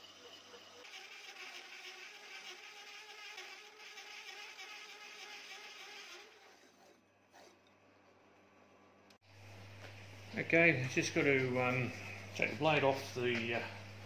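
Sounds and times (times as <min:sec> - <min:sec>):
drill cutting steel plate: 0:00.0 - 0:07.0.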